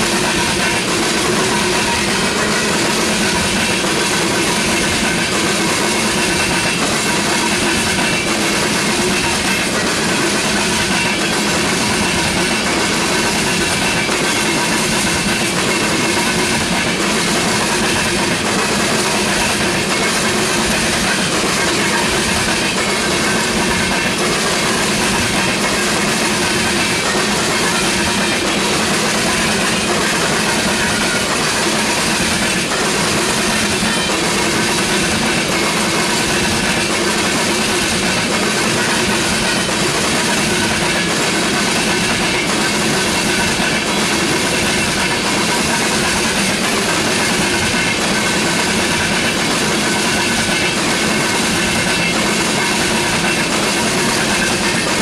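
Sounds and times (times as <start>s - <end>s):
steel wheels running on rails: 0.0s - 55.0s.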